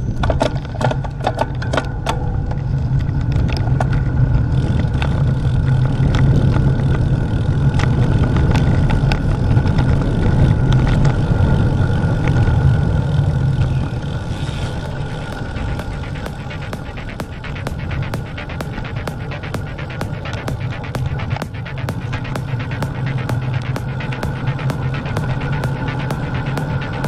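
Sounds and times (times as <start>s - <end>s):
bicycle clicks and rattles: 0.2s - 16.2s
tyres rolling on asphalt: 0.2s - 16.2s.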